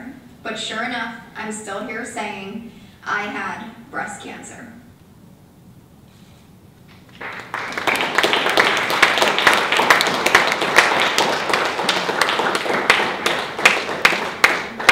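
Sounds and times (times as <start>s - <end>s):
audience applauding: 7.0s - 14.9s.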